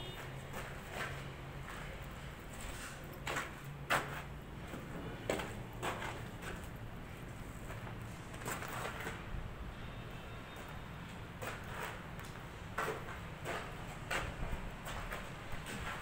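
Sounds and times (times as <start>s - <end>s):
footsteps scuffing on concrete: 0.0s - 6.8s, 11.4s - 16.0s.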